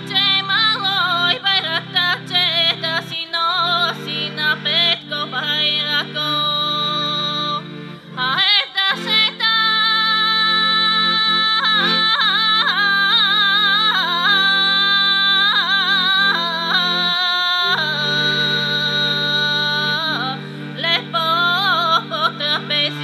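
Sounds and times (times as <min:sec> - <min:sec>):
women singing folk song: 0:00.0 - 0:07.6, 0:08.2 - 0:23.0
accordion chords: 0:00.0 - 0:23.0.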